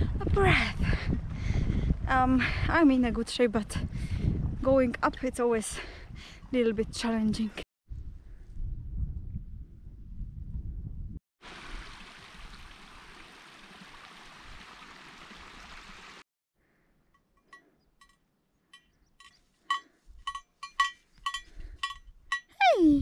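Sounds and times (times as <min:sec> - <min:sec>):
low wind rumble: 0:00.0 - 0:11.2
sheep bell clinking: 0:17.4 - 0:22.6.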